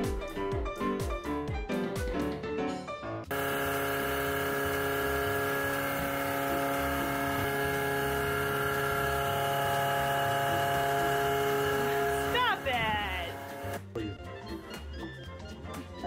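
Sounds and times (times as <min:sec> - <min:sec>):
music: 0:00.0 - 0:03.3, 0:05.2 - 0:16.0
steady machine hum: 0:03.3 - 0:13.8.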